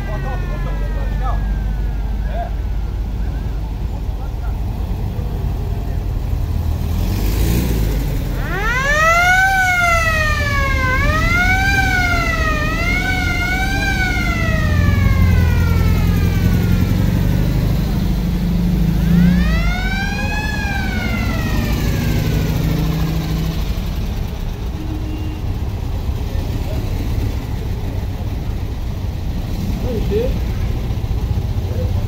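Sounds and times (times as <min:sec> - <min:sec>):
siren wailing: 0:00.0 - 0:03.7, 0:08.3 - 0:24.3
car engines running: 0:00.0 - 0:32.0.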